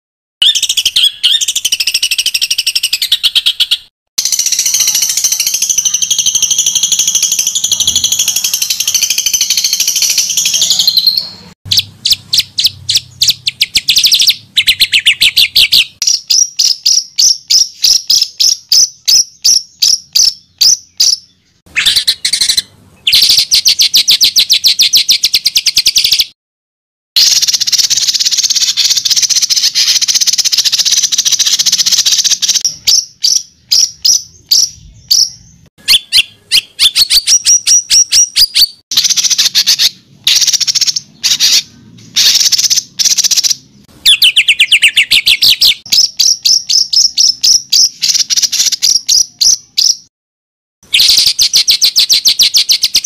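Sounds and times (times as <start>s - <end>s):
songbird trills and warbling: 0.4s - 26.3s, 27.3s - 50.1s
bird sweeping notes: 4.2s - 16.0s.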